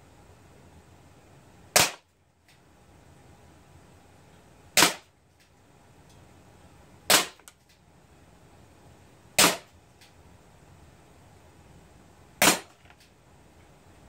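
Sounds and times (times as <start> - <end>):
air pistol shots: 1.7 - 2.1, 4.8 - 5.1, 7.1 - 7.5, 9.4 - 9.7, 12.4 - 12.8.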